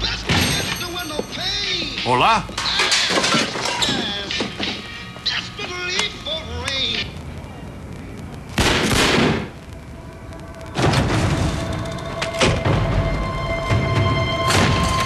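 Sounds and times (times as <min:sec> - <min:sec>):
loud burst: 0:08.4 - 0:11.8
sharp bangs: 0:08.5 - 0:13.2, 0:13.8 - 0:15.0
tense film score drone: 0:09.6 - 0:15.0.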